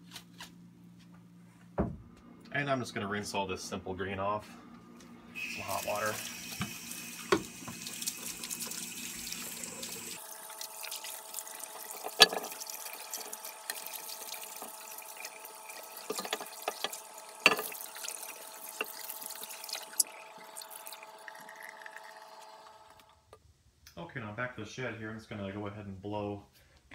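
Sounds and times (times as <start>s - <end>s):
hose water splashing on metal: 5.4s - 21.0s
heavy casting knocking sink: 11.7s - 19.8s.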